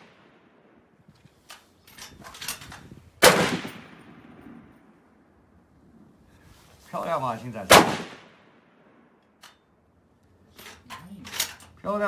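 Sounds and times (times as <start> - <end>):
rifle shot: 3.2 - 4.7, 7.7 - 8.6.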